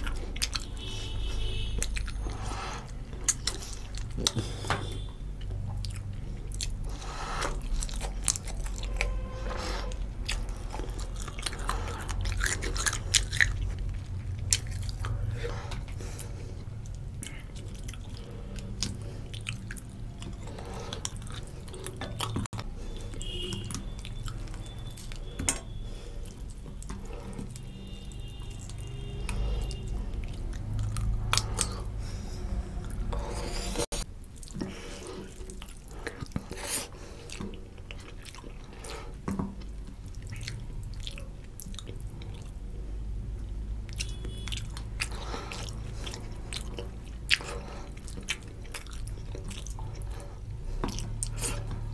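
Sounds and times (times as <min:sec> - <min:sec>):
wet chewing: 0:00.0 - 0:51.9
sharp mouth clicks: 0:01.8 - 0:09.1.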